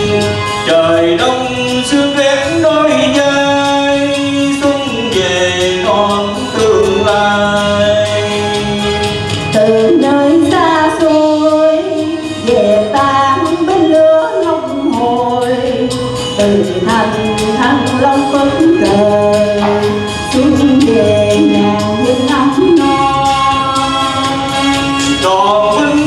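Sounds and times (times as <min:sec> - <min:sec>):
man singing: 0:00.0 - 0:10.8, 0:14.8 - 0:21.8, 0:22.8 - 0:26.0
musical accompaniment: 0:00.0 - 0:26.0
woman singing: 0:09.5 - 0:23.9.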